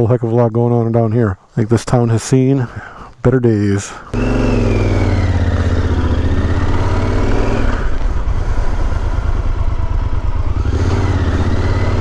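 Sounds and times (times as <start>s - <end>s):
motorcycle engine running: 4.2s - 12.0s.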